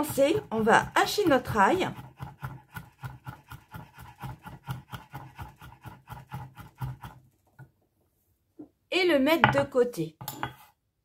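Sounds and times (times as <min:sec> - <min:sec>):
knife chopping on wooden board: 0:00.0 - 0:07.2.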